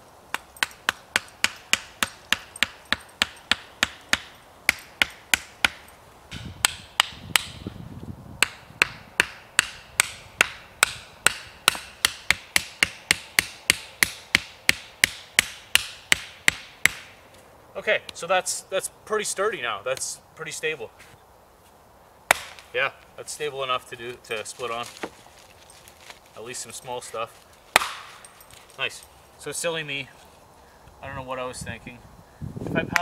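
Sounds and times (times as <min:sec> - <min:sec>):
axe pounding wooden stakes: 0:00.3 - 0:07.7, 0:08.4 - 0:17.2, 0:22.3 - 0:22.7, 0:27.7 - 0:28.2.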